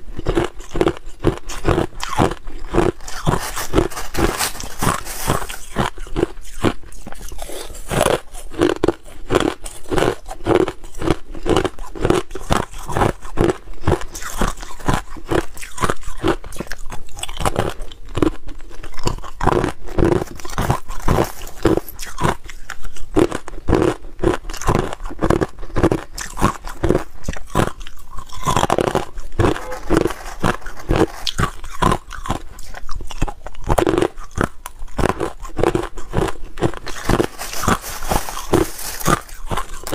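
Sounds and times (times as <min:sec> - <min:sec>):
person chewing crushed ice: 0:00.0 - 0:39.9.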